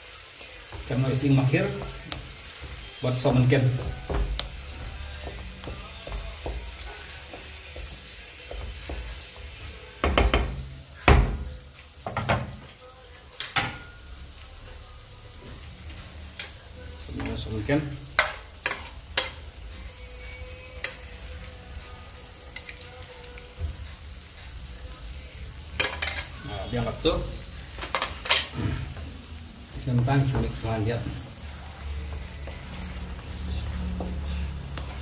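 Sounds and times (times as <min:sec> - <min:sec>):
food sizzling in a pan: 0:00.0 - 0:35.0
utensils knocking on pan: 0:00.7 - 0:12.7.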